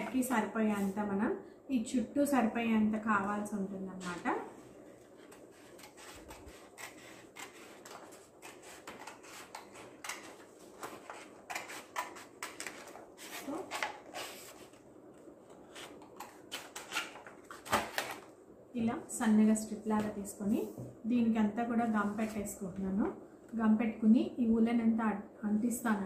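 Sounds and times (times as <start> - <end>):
scissors snipping paper: 5.2 - 14.3.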